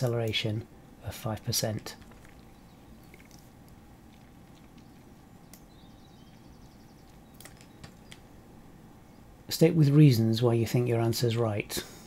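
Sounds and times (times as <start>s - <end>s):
low hum and hiss: 0.0s - 12.0s
faint clicks: 2.0s - 5.7s
faint high chirping: 4.1s - 8.2s.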